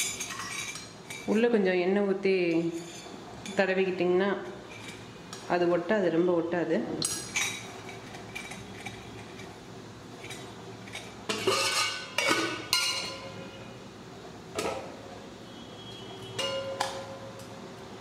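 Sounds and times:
metal vessels clanking: 0:00.0 - 0:01.4, 0:10.2 - 0:13.6, 0:16.3 - 0:17.2.

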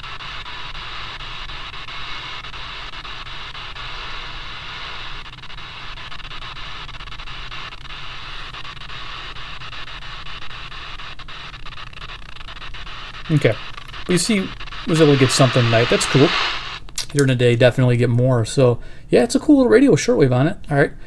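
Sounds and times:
faint crackles: 0:00.0 - 0:19.5
radio static hiss: 0:00.0 - 0:21.0
low hum: 0:12.5 - 0:17.7.

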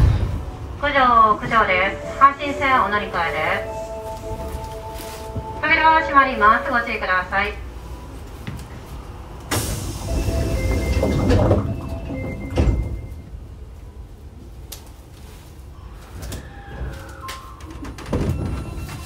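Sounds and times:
sliding doors closing: 0:00.0 - 0:06.8, 0:07.9 - 0:13.8, 0:15.6 - 0:19.0
train inverter whine: 0:00.0 - 0:14.6
doors shutting thud: 0:09.5 - 0:13.1.

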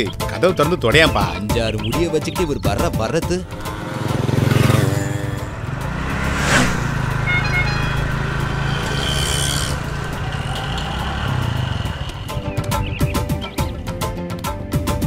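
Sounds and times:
background music: 0:00.0 - 0:15.0
motorcycle engine running: 0:03.3 - 0:14.0.

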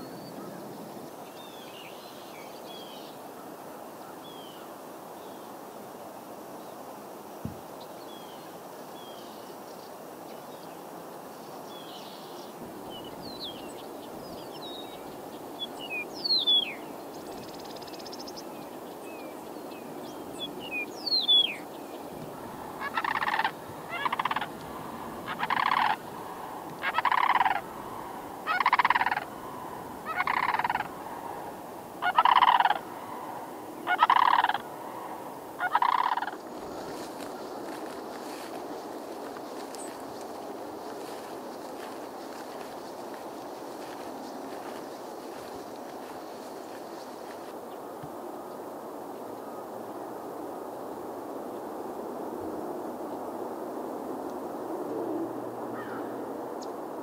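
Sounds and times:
small birds chirping and whistling: 0:15.6 - 0:16.8, 0:20.4 - 0:21.6
crane calling loudly: 0:21.2 - 0:38.4.

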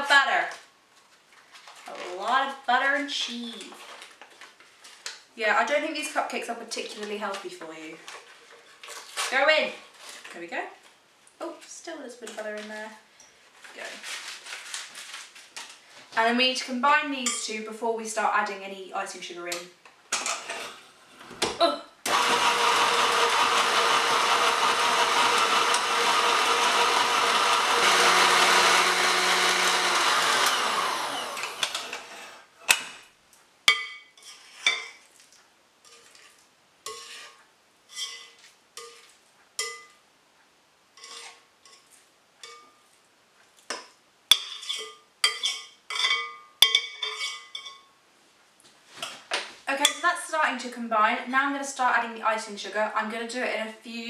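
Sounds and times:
electric stand mixer whisking: 0:22.1 - 0:32.3
knocks and scrapes against bowl: 0:35.9 - 0:37.4, 0:41.0 - 0:41.9, 0:44.3 - 0:47.8.

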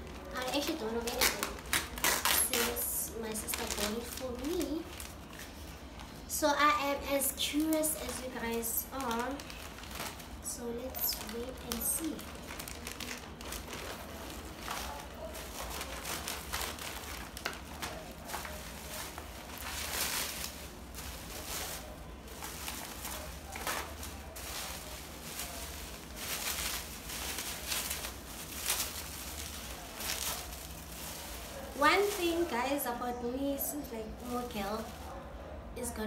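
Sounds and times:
plastic packaging crinkling: 0:00.0 - 0:35.4.

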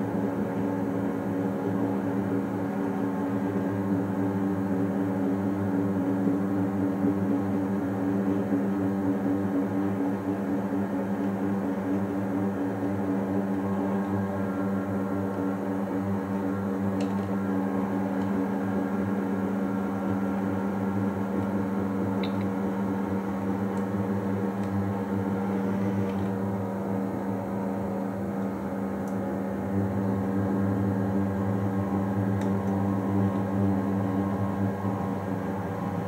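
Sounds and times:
low electrical hum: 0:00.0 - 0:36.0.

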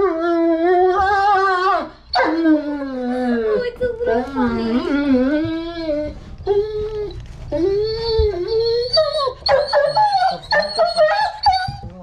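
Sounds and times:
dog whining: 0:00.0 - 0:12.0.

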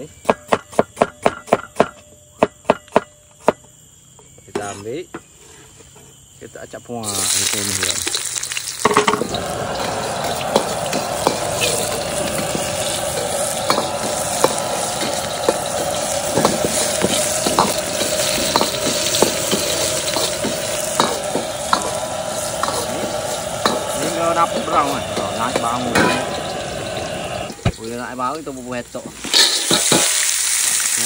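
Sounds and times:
shallots sizzling in hot oil: 0:07.0 - 0:31.0
ladle clinking and scraping wok: 0:07.2 - 0:27.4, 0:29.1 - 0:30.4.

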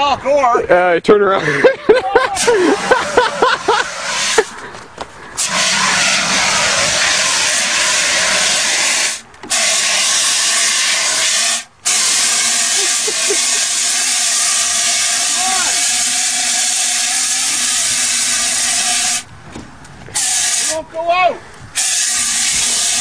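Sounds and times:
fire extinguisher hissing: 0:02.4 - 0:04.6, 0:05.4 - 0:19.3, 0:20.1 - 0:20.8, 0:21.7 - 0:23.0.

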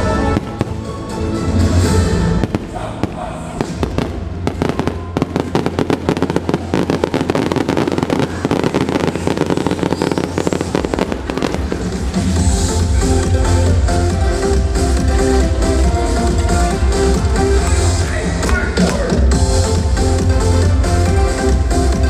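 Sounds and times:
fireworks cracking and banging: 0:00.0 - 0:00.8, 0:02.3 - 0:17.6
music soundtrack: 0:00.0 - 0:22.0.

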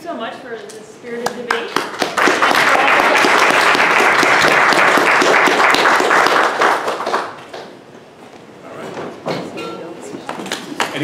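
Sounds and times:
audience applauding: 0:01.4 - 0:07.8.

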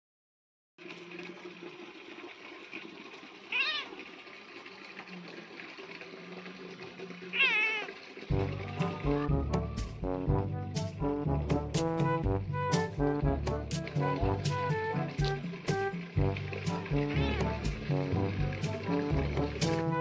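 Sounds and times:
cat meowing: 0:03.5 - 0:03.9, 0:07.3 - 0:07.9, 0:17.0 - 0:17.6
brass music: 0:08.3 - 0:20.0.

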